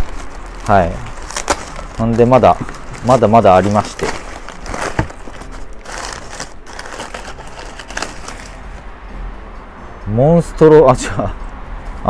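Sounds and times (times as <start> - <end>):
packing paper rustling: 0.0 - 8.6.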